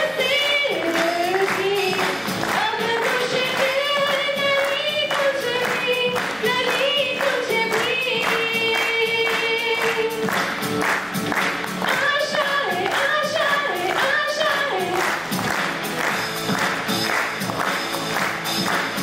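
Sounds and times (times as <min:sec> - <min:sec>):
person singing over music: 0:00.0 - 0:16.2
rhythmic clapping: 0:00.0 - 0:19.0.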